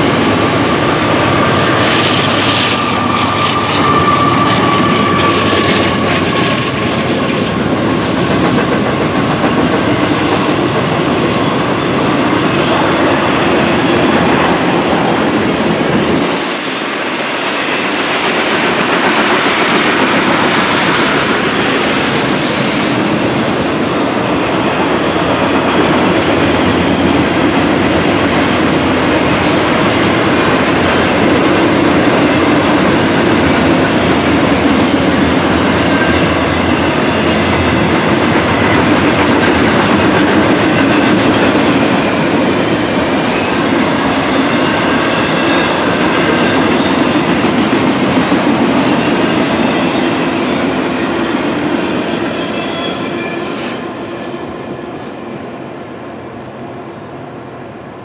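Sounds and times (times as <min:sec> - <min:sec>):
train wheels clattering over rails: 0:00.0 - 0:52.6
high wheel squeal: 0:00.3 - 0:07.2, 0:52.0 - 0:53.9.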